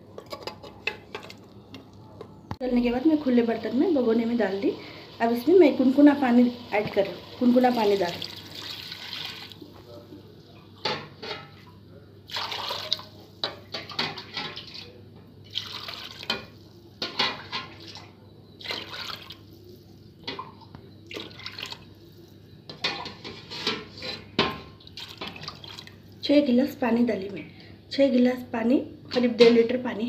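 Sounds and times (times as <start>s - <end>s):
water pouring into metal pot: 6.3s - 9.7s, 12.3s - 13.2s, 15.4s - 16.8s, 18.6s - 20.4s, 21.0s - 22.0s.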